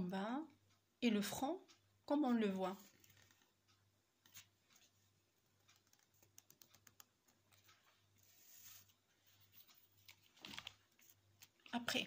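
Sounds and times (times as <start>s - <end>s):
soft rustle: 7.5s - 11.7s.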